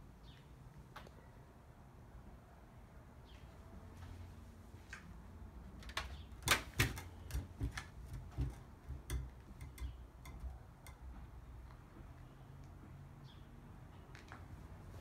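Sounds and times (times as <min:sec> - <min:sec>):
wooden rocking chair knocking: 0:06.4 - 0:11.3.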